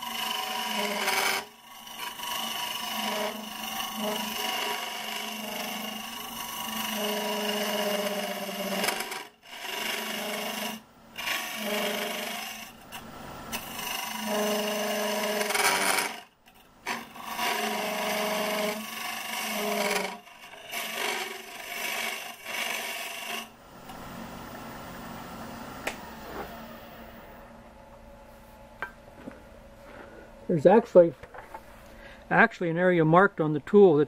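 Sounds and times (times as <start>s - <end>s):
hollowing tool cutting wood: 0.0s - 24.1s
humming tone of tool vibrating: 0.0s - 24.4s
wood lathe humming: 0.0s - 27.5s.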